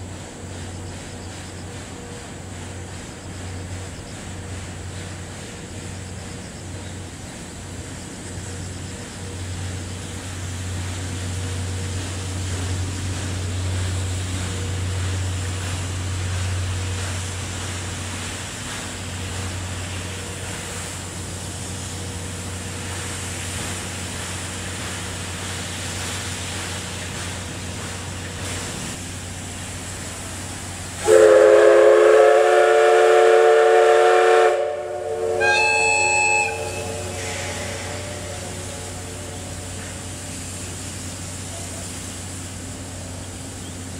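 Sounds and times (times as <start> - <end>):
steam locomotive whistle blast: 31.0 - 40.0.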